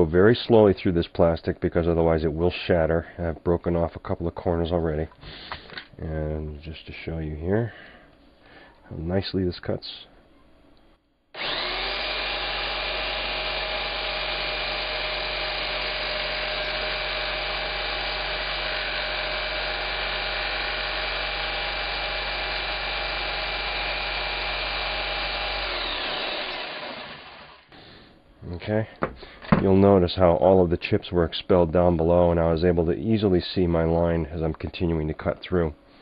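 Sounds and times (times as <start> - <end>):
jigsaw cutting acrylic sheet: 11.4 - 27.7.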